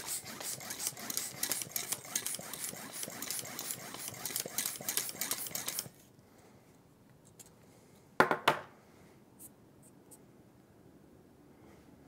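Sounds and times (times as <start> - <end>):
pump knocking on wooden table: 8.2 - 8.6.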